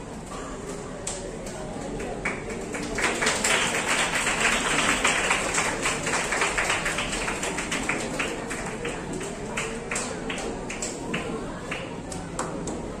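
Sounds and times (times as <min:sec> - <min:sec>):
audience applauding: 0:02.0 - 0:11.9.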